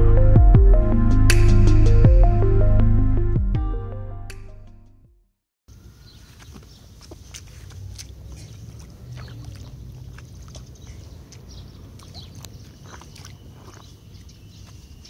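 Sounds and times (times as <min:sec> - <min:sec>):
low rumble: 0:00.0 - 0:04.8
footsteps splashing in mud puddle: 0:06.2 - 0:15.0.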